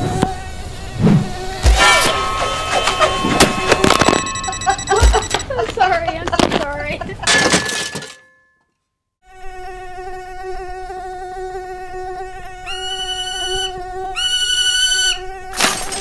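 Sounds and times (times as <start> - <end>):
higher-pitched whine: 0.0 - 5.4
drone propellers whining: 0.0 - 5.6.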